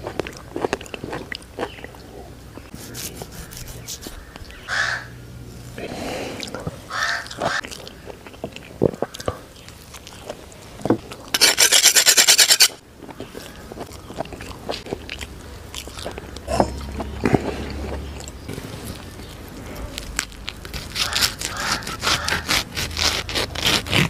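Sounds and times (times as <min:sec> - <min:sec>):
wet chewing: 0:00.0 - 0:04.8, 0:05.5 - 0:24.0
knife blades scraping together: 0:11.4 - 0:12.8.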